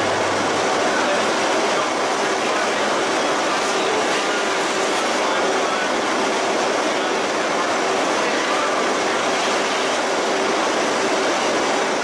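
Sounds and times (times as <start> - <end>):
loud rushing machinery noise: 0.0 - 4.9.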